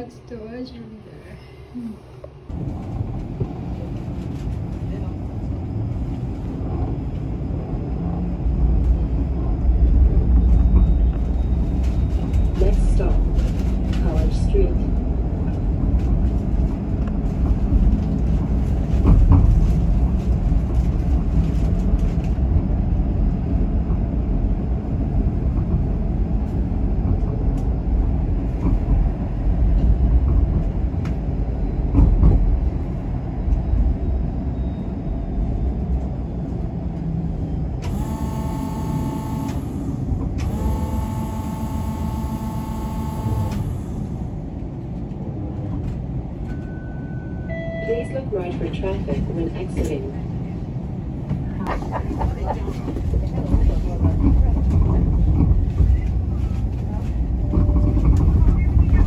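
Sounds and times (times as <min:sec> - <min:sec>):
vehicle interior rumble: 0:01.8 - 0:59.0.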